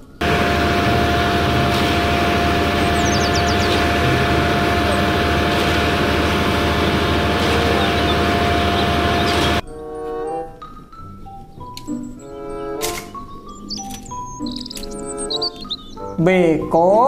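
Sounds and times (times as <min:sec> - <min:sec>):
steady high whine: 0:00.0 - 0:09.6
concrete pouring down chute: 0:00.2 - 0:09.6
diesel engine rumbling: 0:00.2 - 0:09.6.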